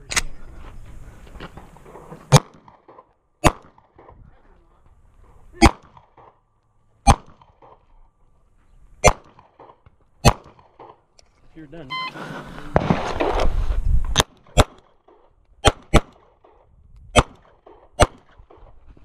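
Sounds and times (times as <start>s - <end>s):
pistol shots: 2.3s - 4.2s, 5.6s - 6.4s, 7.0s - 7.8s, 9.0s - 11.0s, 14.1s - 18.7s.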